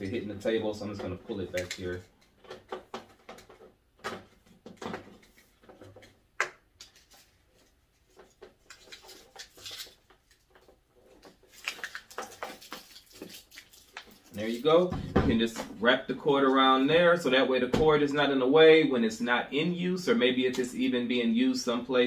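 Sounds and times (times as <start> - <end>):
cord rustling against plastic: 0.7 - 14.9.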